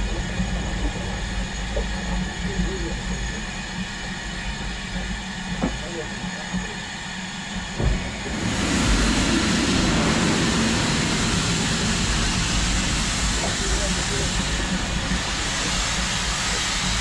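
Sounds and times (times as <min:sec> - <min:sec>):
steady low hum: 0:00.0 - 0:17.0
loud hiss of steam: 0:07.7 - 0:17.0.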